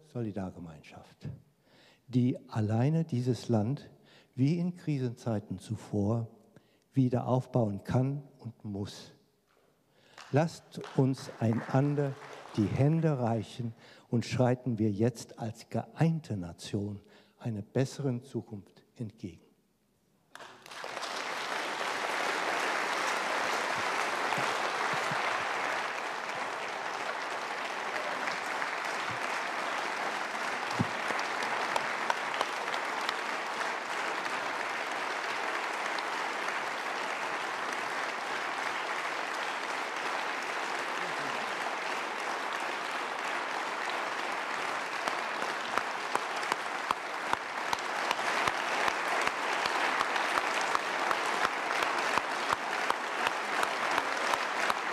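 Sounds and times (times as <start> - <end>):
large audience applauding: 10.1 - 13.3, 20.3 - 54.9.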